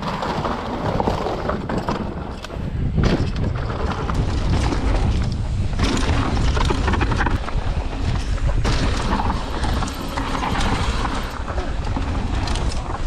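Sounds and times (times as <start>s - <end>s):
bike knocks and rattles: 0.0s - 13.0s
wind buffeting microphone: 0.8s - 13.0s.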